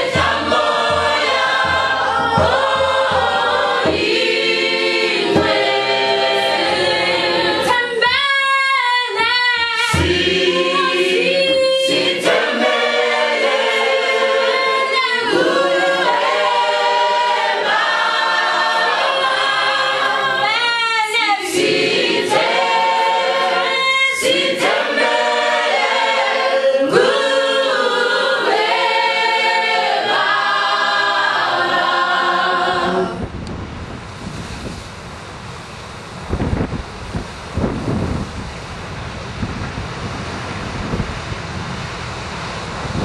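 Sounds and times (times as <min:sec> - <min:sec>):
choir singing a cappella: 0:00.0 - 0:33.5
wind and surf: 0:00.0 - 0:43.0.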